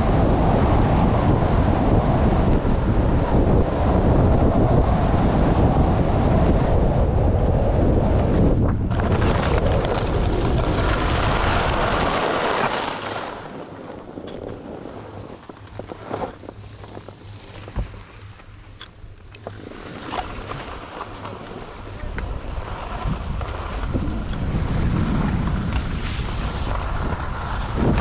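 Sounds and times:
wind rushing over microphone: 0.0 - 18.0, 19.5 - 28.0.

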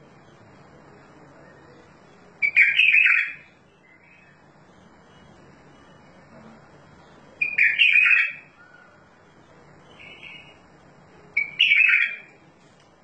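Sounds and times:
bird singing: 1.4 - 6.2, 7.0 - 12.4.

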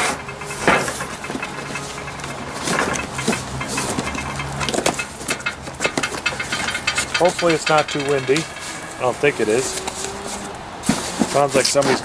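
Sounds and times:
cardboard box rustling and knocking: 10.8 - 12.0.

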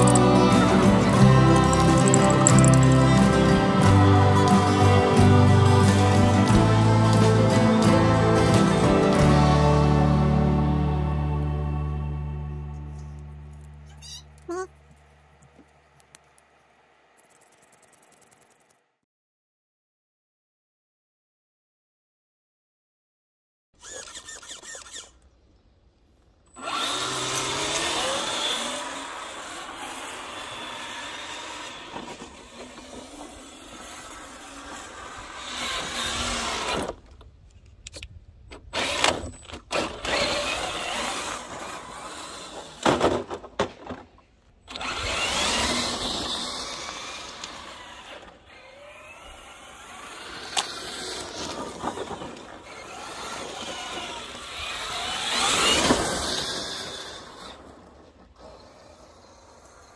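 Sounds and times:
electric motor and gearbox whine: 0.0 - 18.8, 23.8 - 25.3, 26.5 - 43.6, 44.5 - 59.9.

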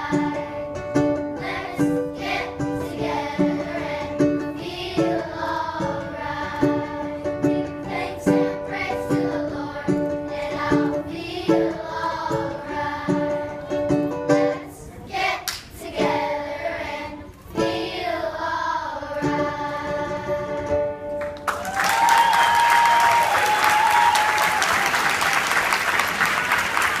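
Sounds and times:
strummed acoustic guitar: 0.0 - 14.6
children's choir singing: 0.0 - 21.2
audience applause: 21.2 - 27.0
person cheering: 21.6 - 24.9.

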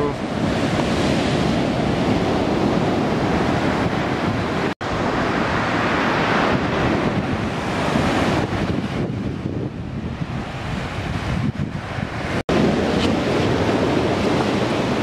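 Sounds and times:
surf breaking on shore: 0.0 - 15.0
wind buffeting microphone: 0.0 - 15.0.

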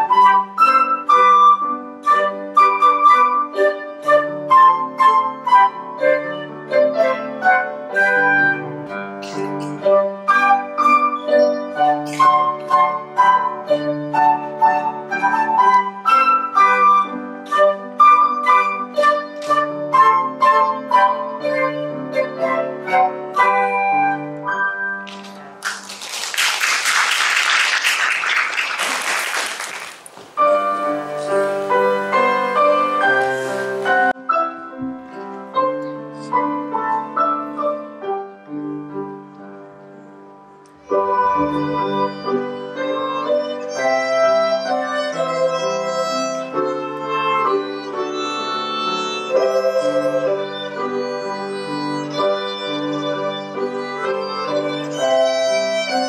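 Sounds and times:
violin and piano classical piece: 0.0 - 25.0, 30.4 - 56.0
audience applause: 25.1 - 34.1.

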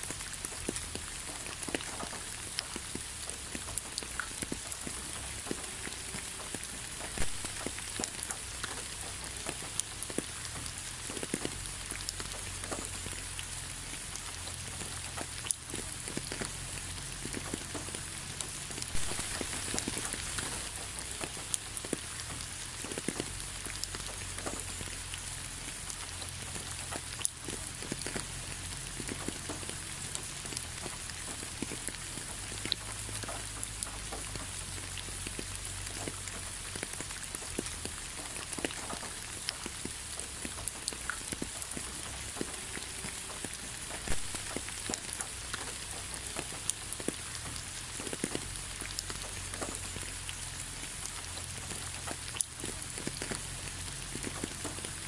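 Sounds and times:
close raindrops ticking: 0.0 - 55.0
rain hissing: 0.0 - 55.0.

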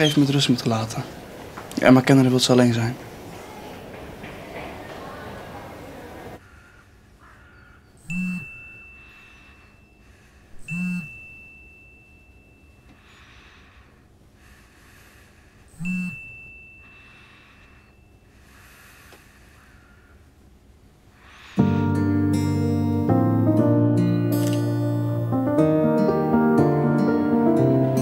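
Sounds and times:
phone vibration buzz: 8.0 - 9.6, 10.6 - 11.3, 15.8 - 18.0.

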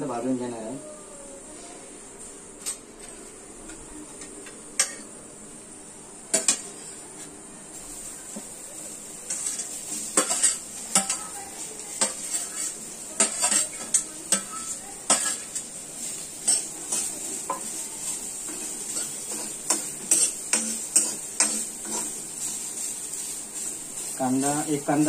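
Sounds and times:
steel spoon clinking and scraping: 9.3 - 11.3, 12.0 - 15.7, 16.4 - 22.5.

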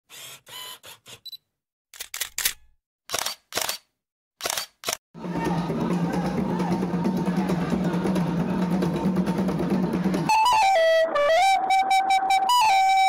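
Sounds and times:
camera shutter clicks: 2.0 - 5.0
drumming: 5.2 - 11.8.

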